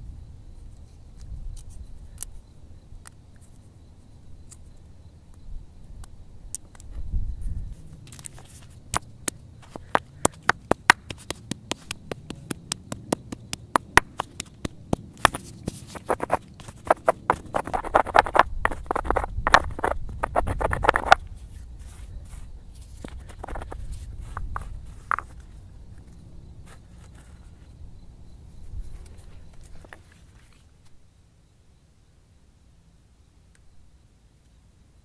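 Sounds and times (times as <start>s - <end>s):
gritty crunching of nuts: 8.0s - 27.5s
stone knocking on rock: 8.9s - 21.3s, 23.0s - 25.5s.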